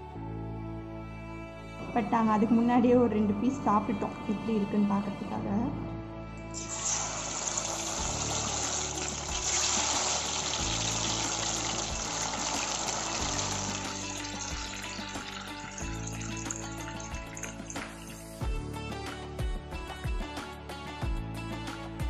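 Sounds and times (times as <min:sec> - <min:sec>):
background music: 0:00.0 - 0:22.0
oil sizzling in a pan: 0:06.5 - 0:18.4.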